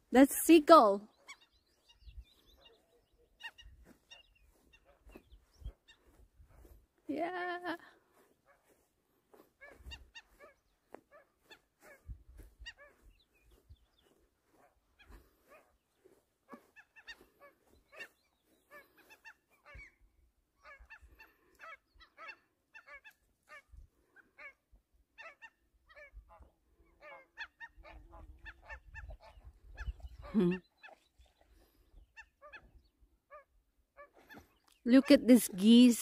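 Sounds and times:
wind rumble on microphone: 12.0 - 13.9, 27.9 - 30.4.

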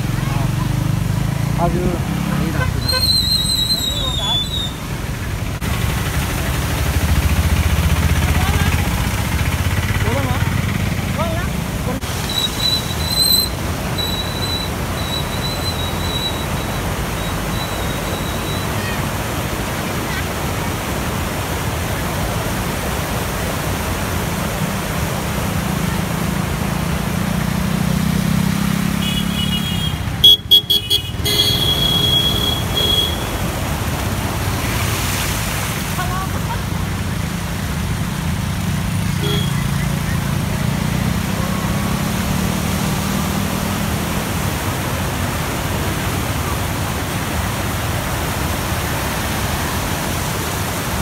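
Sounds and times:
floodwater rushing: 0.0 - 51.0
motorcycles riding through water: 0.0 - 51.0
vehicle horn tooting: 2.3 - 4.4, 29.0 - 33.4, 39.2 - 39.8.

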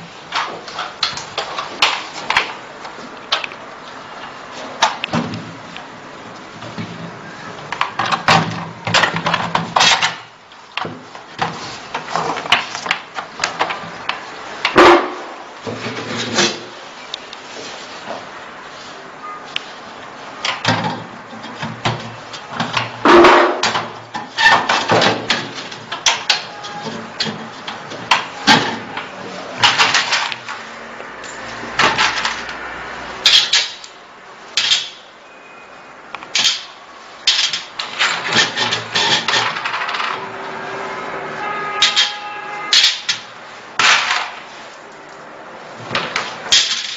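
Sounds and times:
metal parts clanking and scraping: 7.7 - 10.3, 20.5 - 30.6, 31.2 - 32.6, 33.2 - 33.9, 36.3 - 40.3, 41.8 - 44.5, 46.0 - 46.9.

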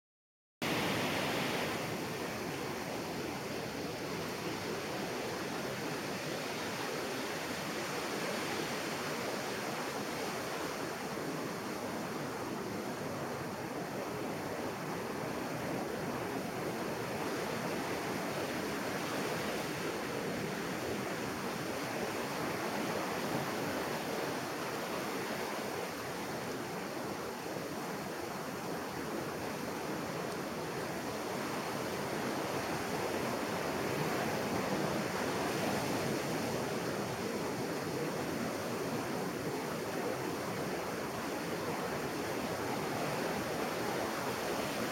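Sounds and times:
surf washing up a beach: 0.6 - 44.9.

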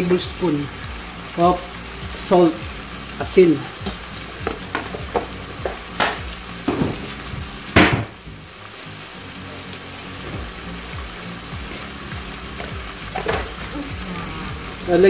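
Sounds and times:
steaming liquid hissing: 0.0 - 15.0.

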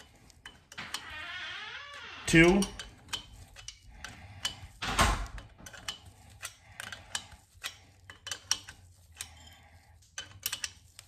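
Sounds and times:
wrench clicking on metal: 2.2 - 9.5, 10.2 - 11.0.

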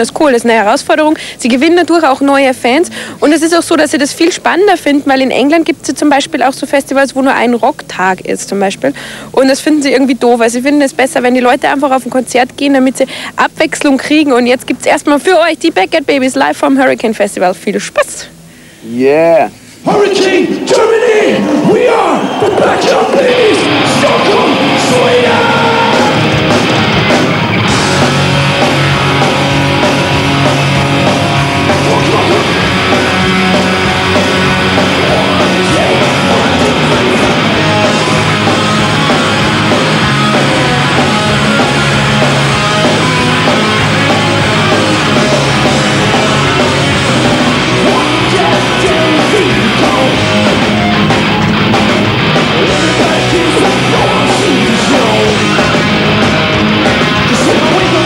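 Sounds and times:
hard rock band playing live: 22.2 - 58.0.

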